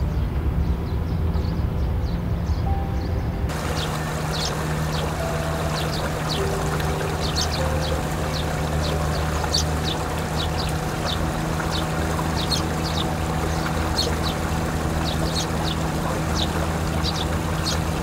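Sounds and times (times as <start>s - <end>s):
birds chirping: 0.0s - 18.0s
distant machine engine hum: 0.0s - 18.0s
water flowing and trickling: 3.5s - 18.0s.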